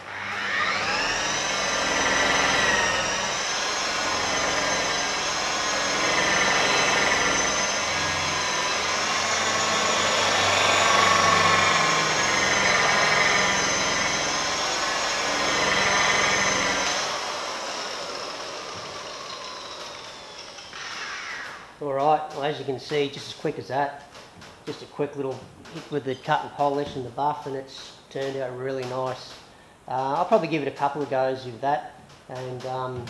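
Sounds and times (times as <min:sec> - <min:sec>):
electric polisher motor whine: 0:00.0 - 0:21.7.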